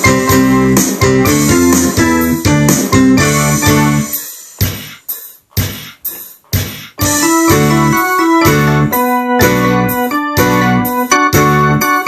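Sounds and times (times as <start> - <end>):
keyboard playing rock chords: 0.0 - 4.8, 7.0 - 12.0.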